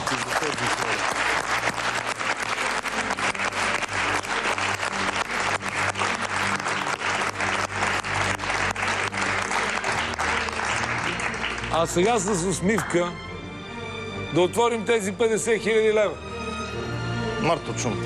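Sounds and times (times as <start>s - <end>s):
audience applauding: 0.0s - 13.2s
low background music: 0.0s - 18.0s.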